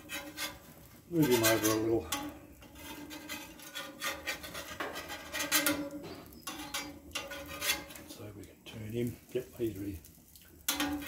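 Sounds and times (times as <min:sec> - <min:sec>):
metal spatula scraping griddle: 0:00.0 - 0:08.2, 0:10.6 - 0:11.0.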